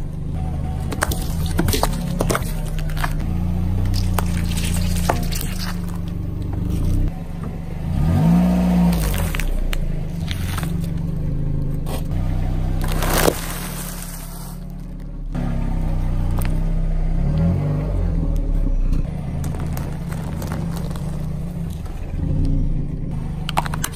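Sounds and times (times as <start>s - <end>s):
car engine running: 0.0s - 23.9s
tyre crunching over grit: 8.3s - 11.1s, 11.8s - 15.2s, 19.3s - 22.2s
sharp cracks and crackles: 12.8s - 15.1s, 19.4s - 22.0s.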